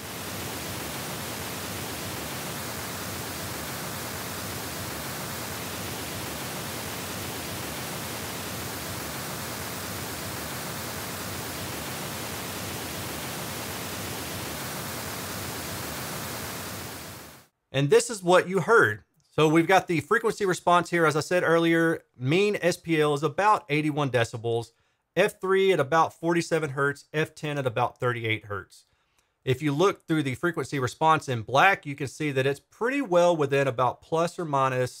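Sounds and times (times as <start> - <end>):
pink noise hiss: 0.0 - 17.5.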